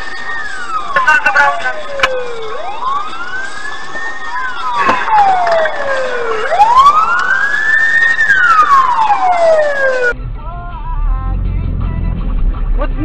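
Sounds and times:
police siren wailing: 0.0 - 10.2.

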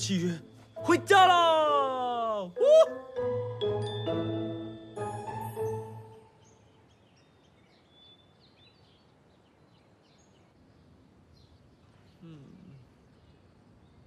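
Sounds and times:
background hiss: 0.0 - 14.0
chiming music cue: 2.6 - 6.5
birds chirping: 3.4 - 14.0.

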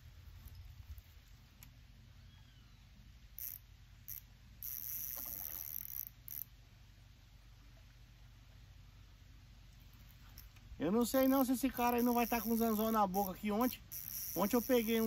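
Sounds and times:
fishing reel drag buzzing: 3.3 - 6.5, 11.0 - 15.0.

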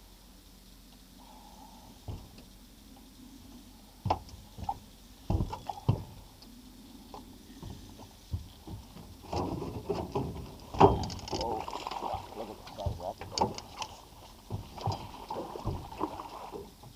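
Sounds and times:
knocks and clunks on a boat: 2.0 - 2.5, 4.0 - 6.3, 7.1 - 16.9.

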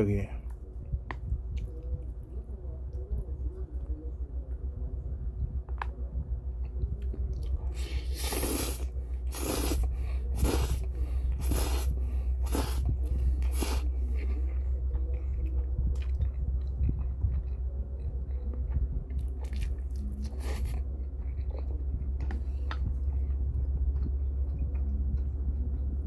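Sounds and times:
person slurping noodles: 7.8 - 13.9.

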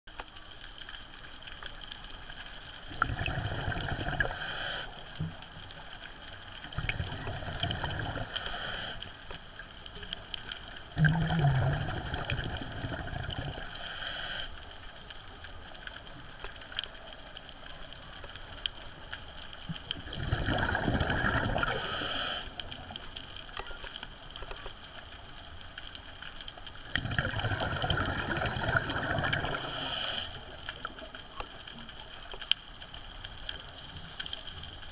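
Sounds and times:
diver exhaling bubbles underwater: 2.9 - 4.6, 6.7 - 8.5, 11.0 - 13.7, 20.0 - 22.4, 26.8 - 30.2
regulator hiss: 4.1 - 5.3, 8.1 - 9.3, 13.6 - 14.7, 21.5 - 22.7, 29.3 - 30.6.

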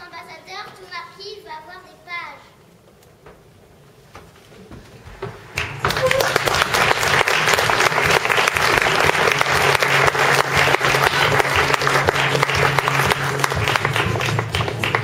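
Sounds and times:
audience applauding: 5.4 - 15.0.

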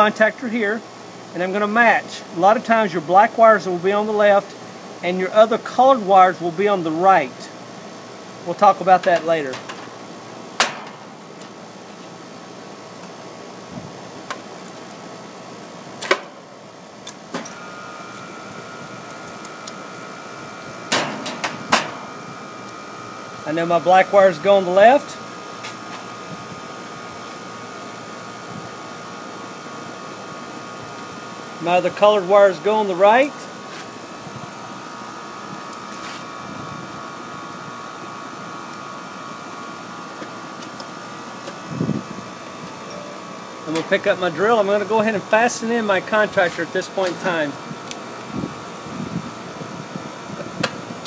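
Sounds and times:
faint steady whine: 0.0 - 51.0
steady background hum: 0.0 - 51.0
high whine: 41.4 - 51.0.

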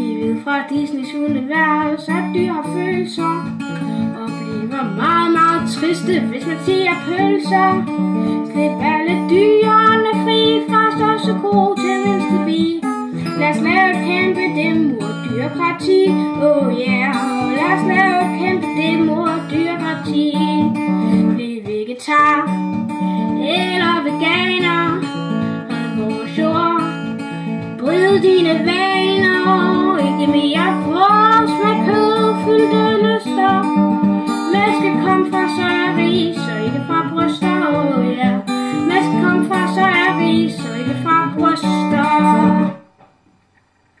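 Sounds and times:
acoustic guitar strumming: 0.0 - 44.0.

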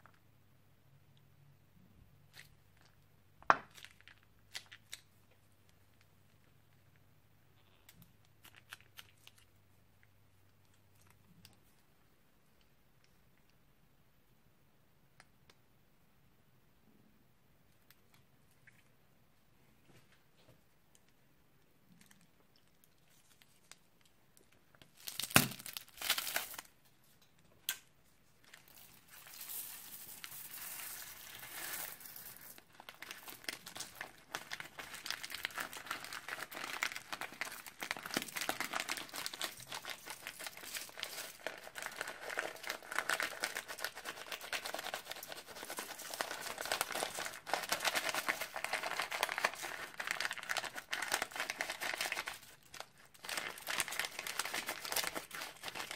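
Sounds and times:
plastic bags crinkling: 28.4 - 55.9.

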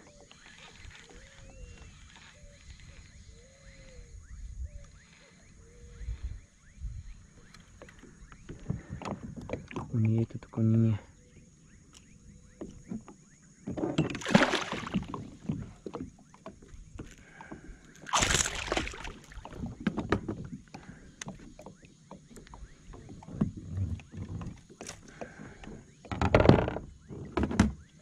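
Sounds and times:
fish thrashing and splashing: 14.2 - 15.4, 18.0 - 19.8.

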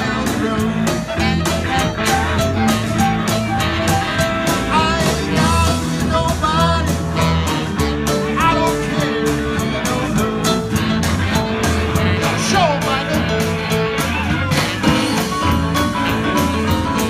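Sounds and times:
lead vocal singing: 0.0 - 1.8, 4.5 - 13.7
bass guitar: 0.0 - 17.0
drums with cymbals: 0.0 - 17.0
electric guitar: 0.0 - 17.0.

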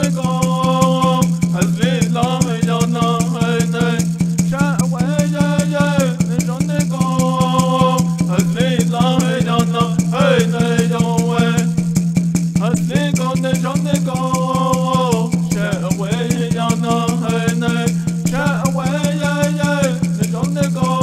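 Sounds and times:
person singing: 0.0 - 11.7, 12.8 - 21.0
water drum beat: 0.0 - 21.0
gourd rattle shaking: 0.1 - 21.0.

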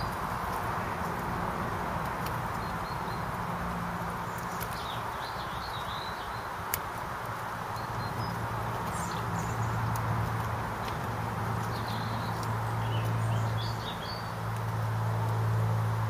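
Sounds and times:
outdoor background noise: 0.0 - 16.0
bird chirping: 2.2 - 3.4, 4.2 - 6.6, 7.6 - 11.0, 11.6 - 14.5.

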